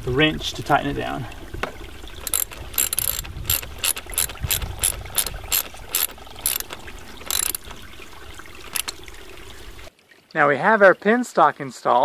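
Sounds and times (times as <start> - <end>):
ratchet wrench clicking: 2.2 - 7.8, 8.7 - 9.0.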